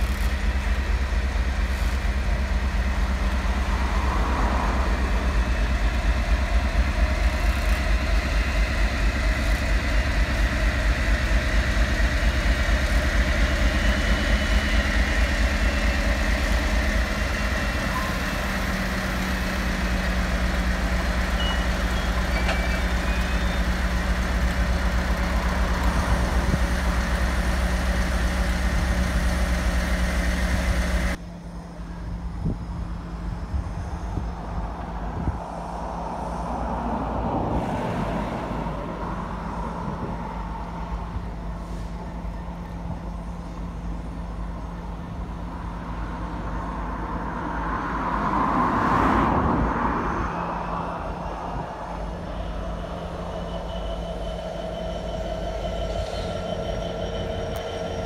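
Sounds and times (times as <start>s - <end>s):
diesel locomotive engine running: 0.0s - 58.0s.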